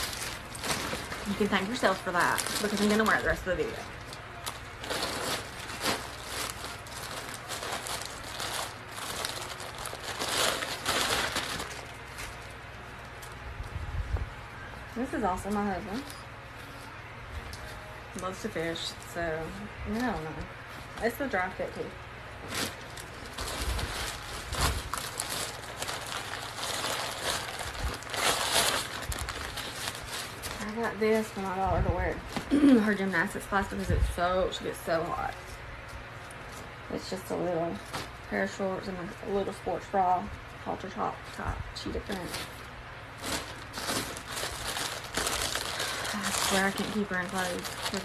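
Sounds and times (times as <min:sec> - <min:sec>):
plastic bag crinkling: 0:00.0 - 0:13.7, 0:22.4 - 0:34.1, 0:41.4 - 0:48.0.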